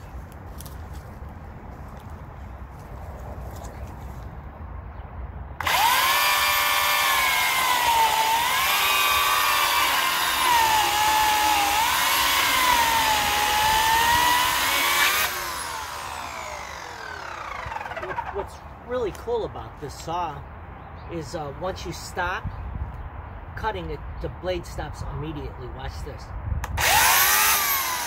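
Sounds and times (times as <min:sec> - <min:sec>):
chain cutting through log: 0:05.6 - 0:18.5, 0:26.8 - 0:28.0
electric chainsaw motor whining: 0:05.6 - 0:18.6, 0:26.8 - 0:28.0.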